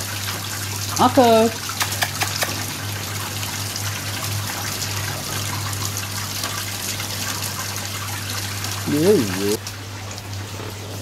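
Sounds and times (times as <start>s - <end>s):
water trickling: 0.0s - 11.0s.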